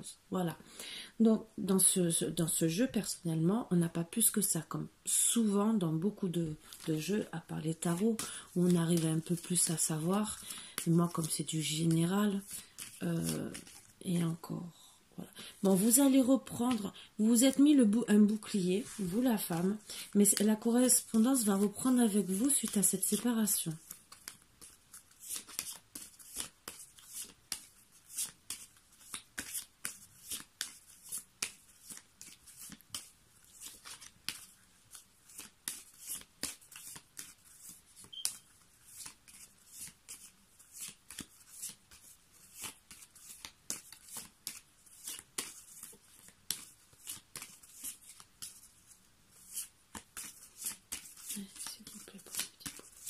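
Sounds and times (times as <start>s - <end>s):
cards being shuffled: 6.5s - 14.0s, 18.3s - 53.0s.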